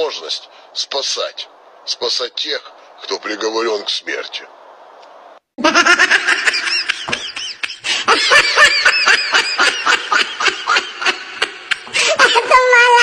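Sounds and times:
high-pitched laughter: 5.6 - 13.0.

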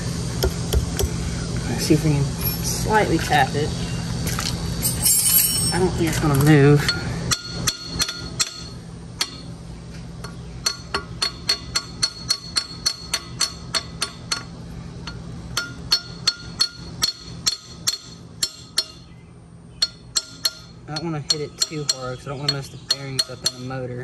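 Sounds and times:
hammer tapping on metal: 19.8 - 23.8.

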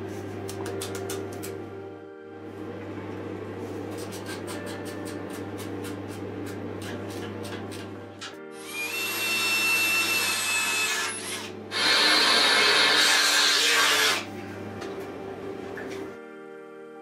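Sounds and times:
background music: 0.0 - 17.0
cordless drill running: 8.6 - 14.2.

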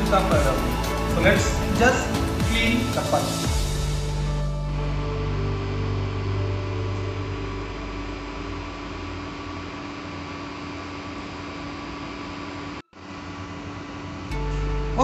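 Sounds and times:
low hum: 3.5 - 15.0.

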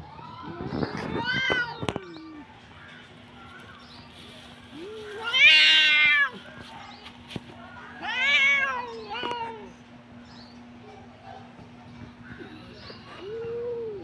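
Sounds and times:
cats yowling: 4.7 - 6.4, 7.9 - 9.8.

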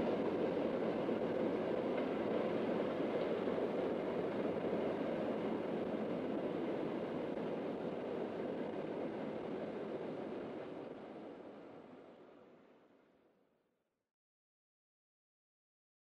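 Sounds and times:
train rolling along track: 0.0 - 12.2.

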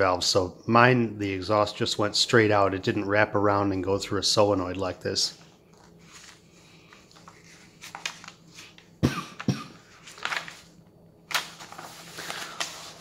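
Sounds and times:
paper pages rustling: 5.3 - 9.0, 9.9 - 13.0
paper crinkles: 5.6 - 8.9, 9.9 - 13.0.

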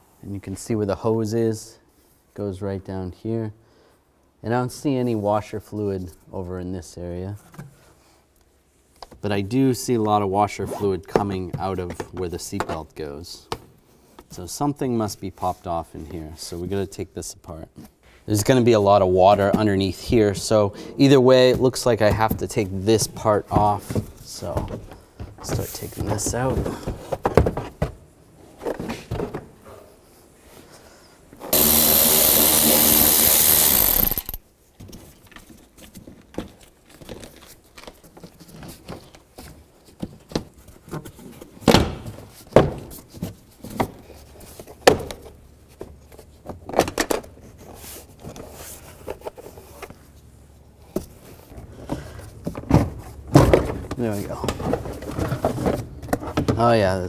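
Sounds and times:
power drill running: 31.5 - 34.4.

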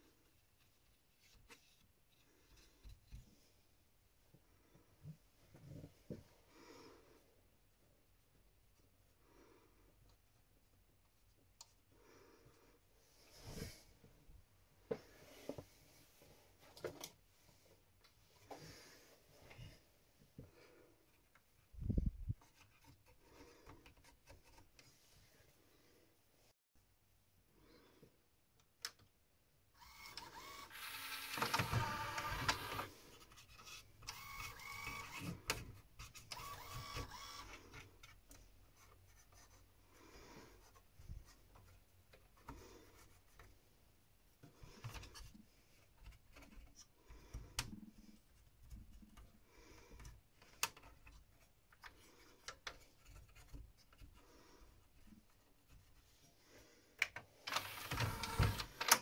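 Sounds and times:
disc player mechanism whirring: 29.8 - 32.9, 34.0 - 35.6, 36.2 - 37.6, 57.5 - 59.0
gears clicking and rubbing: 29.8 - 37.7, 57.5 - 59.0.

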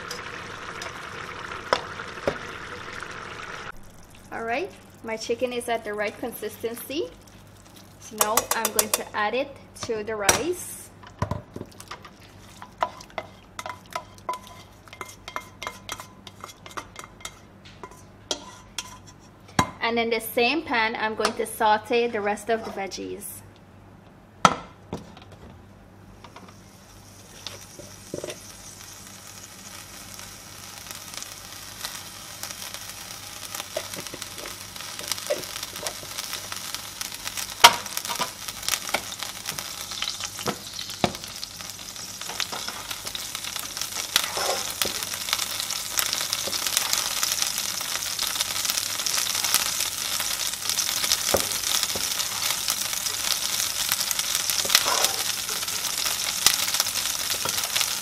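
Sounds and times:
food sizzling in a pot: 0.0 - 10.9, 11.6 - 19.3, 26.2 - 58.0
spatula scraping a pot: 12.4 - 19.4, 44.0 - 45.0, 54.6 - 56.0.

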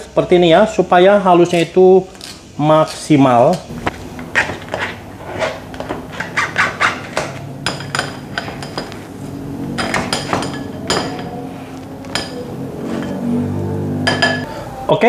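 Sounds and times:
utensil scraping and clinking on sieve: 12.1 - 13.3.

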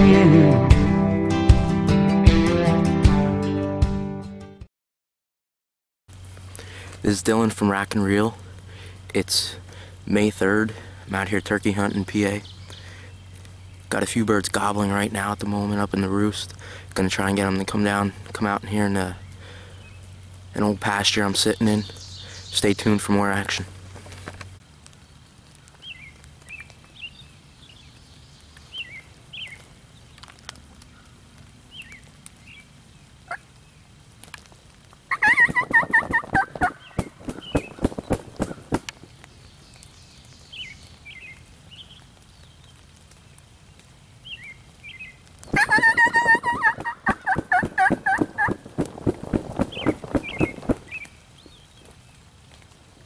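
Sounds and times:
faint songbird chirps: 11.1 - 14.1, 21.1 - 23.5, 25.0 - 30.2, 36.6 - 43.5, 49.5 - 52.2
turkey gobbling: 35.1 - 38.9, 45.5 - 48.8.

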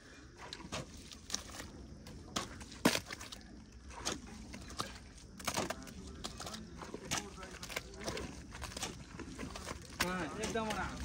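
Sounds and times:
wet clay squelching and slapping: 0.0 - 11.0.

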